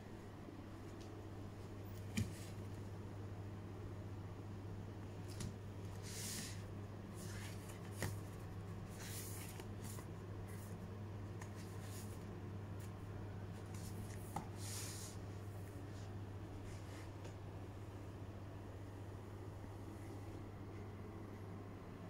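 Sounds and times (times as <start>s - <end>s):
steady low hum: 0.0s - 22.0s
paper pages rustling and flipping: 5.3s - 15.2s.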